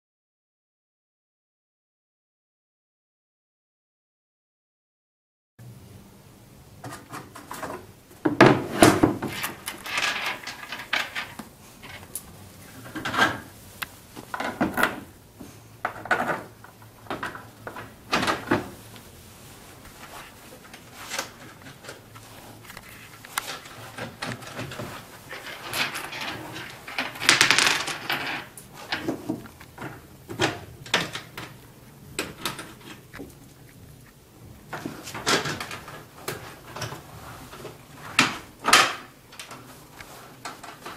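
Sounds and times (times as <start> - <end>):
parts clattering on a workbench: 6.8 - 12.2, 12.8 - 13.5, 14.2 - 18.8, 19.9 - 31.6, 34.7 - 40.9.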